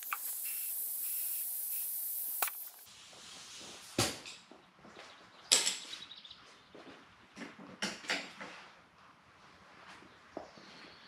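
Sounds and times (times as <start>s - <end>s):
compressed air hissing: 0.0s - 2.9s.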